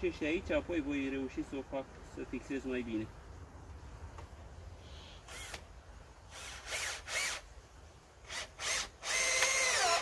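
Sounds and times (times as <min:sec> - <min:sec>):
cordless drill motor whine: 0:06.3 - 0:07.4, 0:08.3 - 0:10.0.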